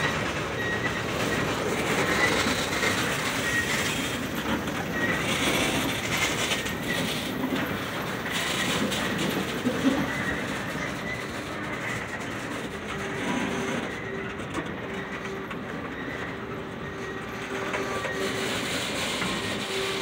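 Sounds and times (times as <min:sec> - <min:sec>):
train wheels clacking over rail joints: 0:00.0 - 0:20.0
wheel squeal: 0:00.0 - 0:20.0.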